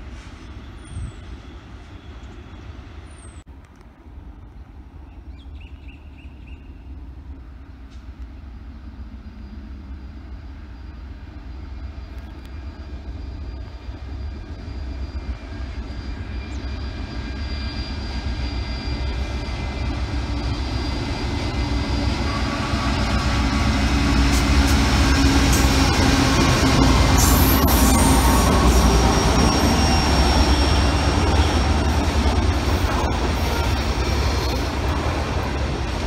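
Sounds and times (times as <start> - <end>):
diesel locomotive engine rumble: 0.0 - 36.0
train wheels clicking: 19.8 - 36.0.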